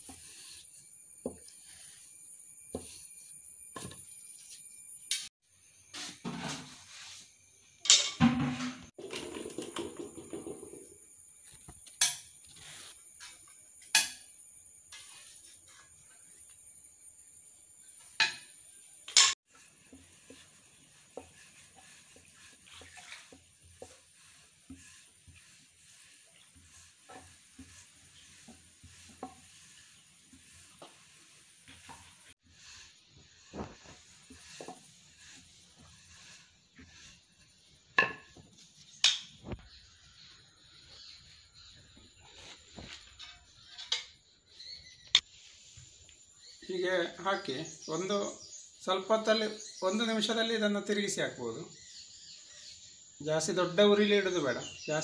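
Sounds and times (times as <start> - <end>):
rustling and soft scraping: 6.0 - 7.5, 9.0 - 13.6, 14.9 - 16.7, 19.5 - 46.6.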